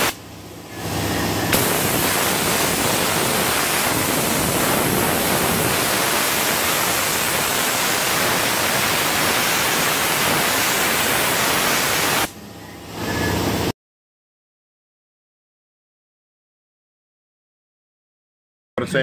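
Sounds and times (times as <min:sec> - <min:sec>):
sandblaster air hiss: 0:00.0 - 0:00.2, 0:00.9 - 0:12.3.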